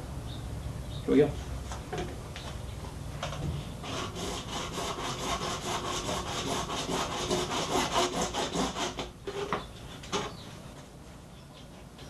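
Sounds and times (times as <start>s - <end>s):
hacksaw cutting plastic pipe: 3.8s - 9.6s.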